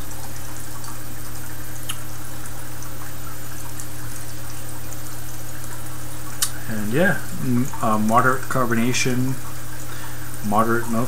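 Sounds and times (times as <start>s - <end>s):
low constant hum: 0.0s - 11.0s
steady background hiss: 6.2s - 11.0s.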